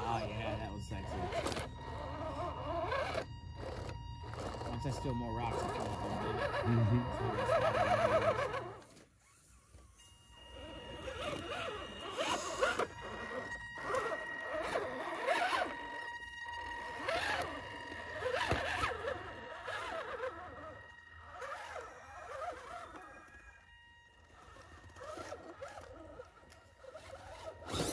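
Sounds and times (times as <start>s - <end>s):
electric motor and gears whirring: 0.0s - 27.9s.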